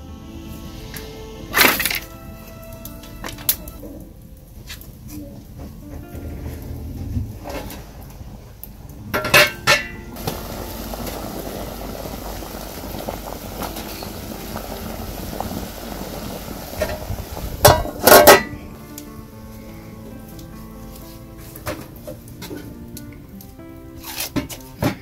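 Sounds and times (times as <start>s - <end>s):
water bubbling in pot: 6.7s - 18.9s
metal lid clanking: 9.2s - 10.1s, 17.6s - 18.6s.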